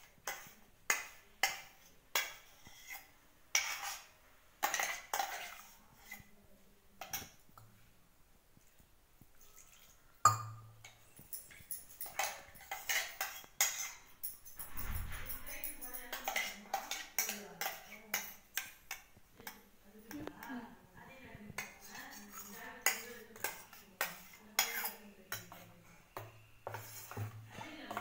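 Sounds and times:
steel spoon scraping metal jar: 11.3 - 17.9.

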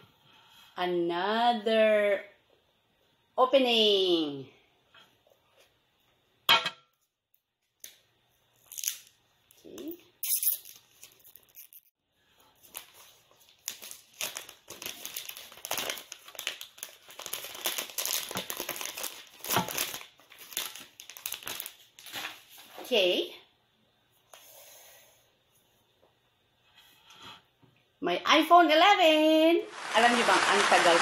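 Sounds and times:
plastic packaging crinkling and tearing: 10.2 - 11.9, 12.6 - 22.7.

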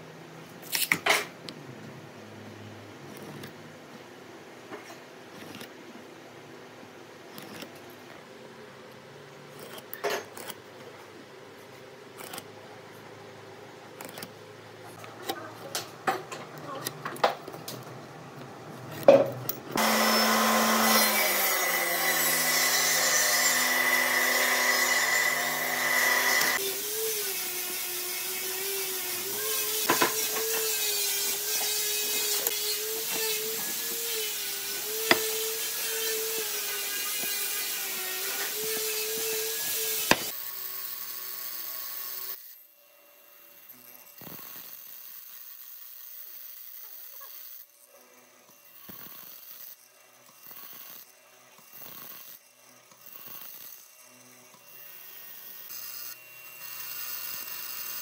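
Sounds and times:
woodworking power machine whining: 19.8 - 58.0
square and pencil tapping on boards: 35.0 - 35.3.

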